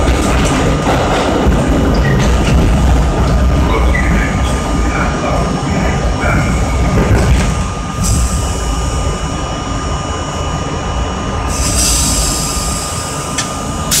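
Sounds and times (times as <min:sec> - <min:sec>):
subway train rumble: 0:00.0 - 0:14.0.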